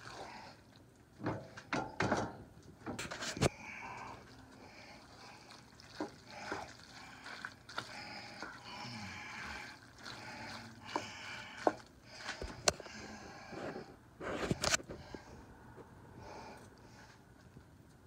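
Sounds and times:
wooden spatula stirring: 2.9 - 15.2.

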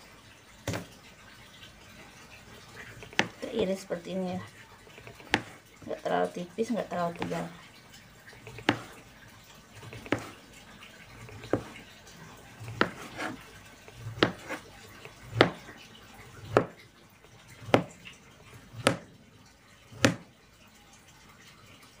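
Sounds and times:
knife slicing: 12.6 - 13.4, 14.0 - 15.6
knife knocking on cutting board: 12.8 - 13.4, 14.2 - 14.6, 15.3 - 15.6, 20.0 - 20.2.

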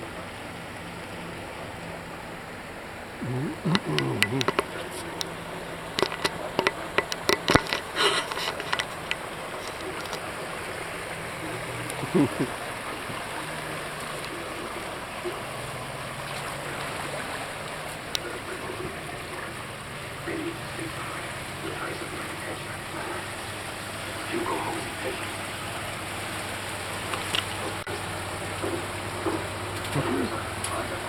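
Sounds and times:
vehicle wading through water: 0.0 - 31.0
faint low hum: 3.0 - 31.0
sharp clicks and knocks: 6.0 - 10.2.

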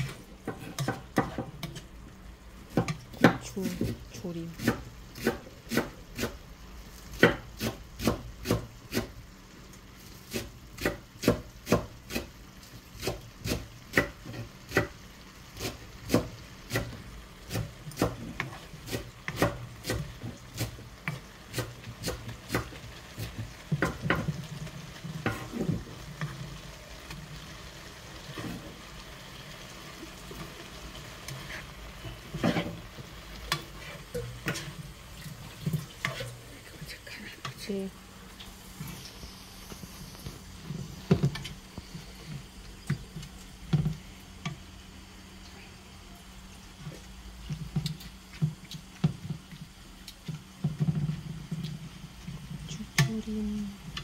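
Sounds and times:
wooden spatula knocking on a pan: 23.7 - 24.4.

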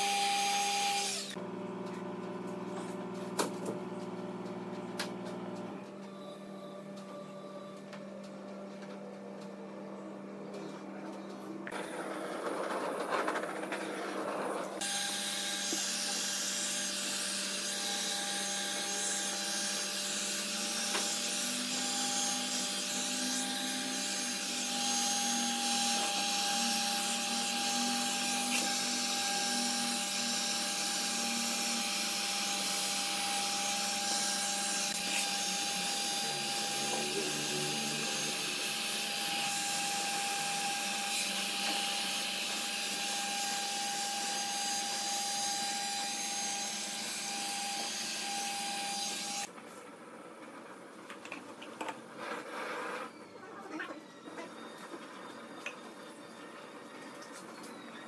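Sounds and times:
power tool working wood: 0.0 - 1.4, 11.7 - 49.5.

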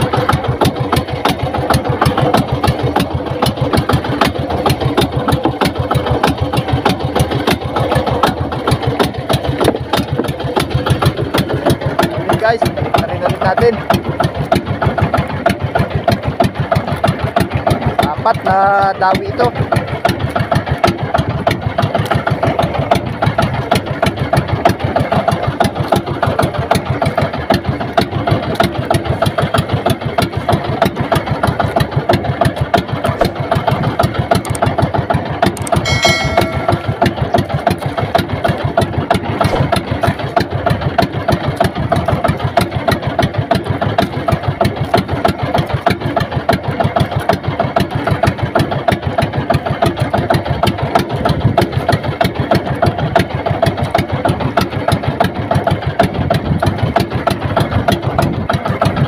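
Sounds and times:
small boat engine running: 0.0 - 59.0
brief high tone: 35.9 - 37.2.

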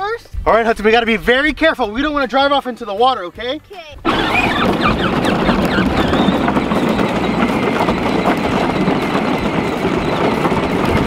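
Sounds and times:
plastic wheels rumbling over boards: 4.0 - 11.0
toy tractor motor running: 4.0 - 11.0.

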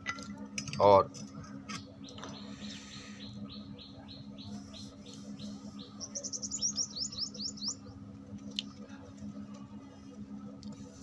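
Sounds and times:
steady low hum: 0.0 - 11.0
bird calls: 1.7 - 8.0.

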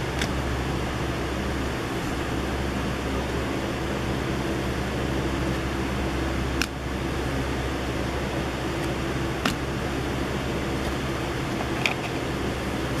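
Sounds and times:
background hum and hiss: 0.0 - 13.0
trading cards clicking: 0.1 - 0.4.

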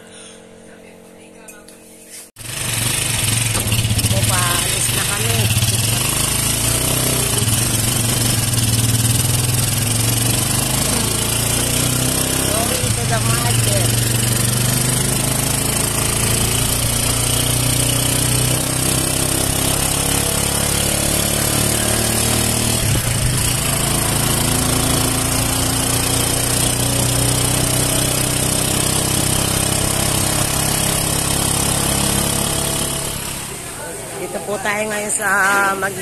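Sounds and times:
vehicle engine running: 2.4 - 36.0.

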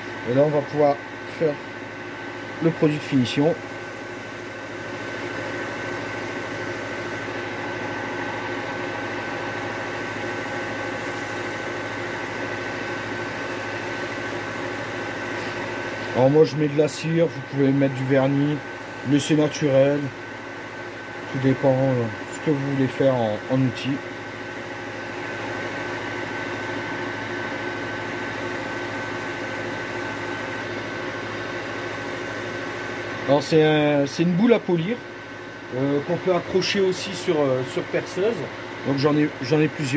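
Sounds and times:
wood lathe motor humming and whining: 2.5 - 39.9.

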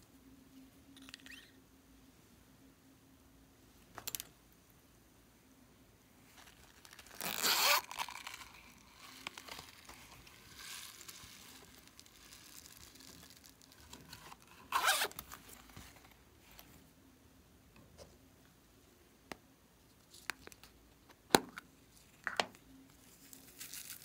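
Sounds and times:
zipper rasping: 7.0 - 8.8, 14.6 - 15.2.

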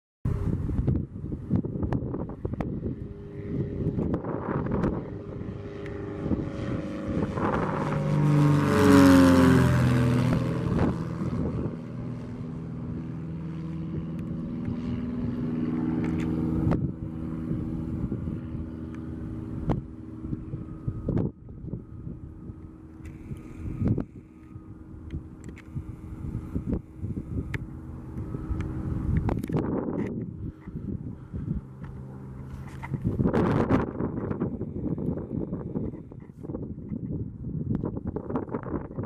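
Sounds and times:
propeller plane passing overhead: 0.3 - 39.0.

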